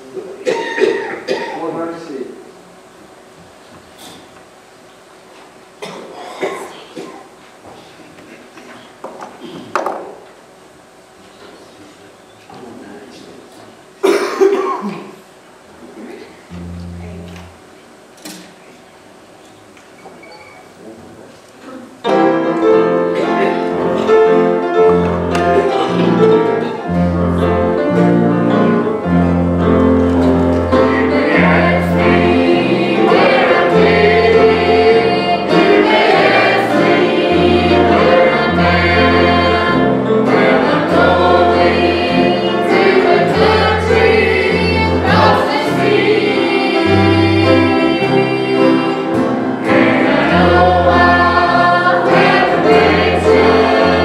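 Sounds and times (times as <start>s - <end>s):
acoustic guitar: 16.0s - 17.6s, 22.1s - 54.0s
steady bass line: 16.5s - 17.6s
choir singing a hymn: 22.0s - 54.0s.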